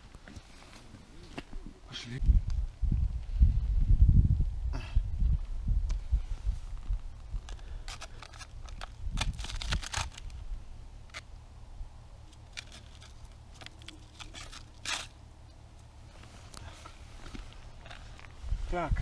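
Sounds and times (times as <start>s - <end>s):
low rumble: 2.2s - 7.6s
wood rubbing on ice: 12.3s - 15.2s.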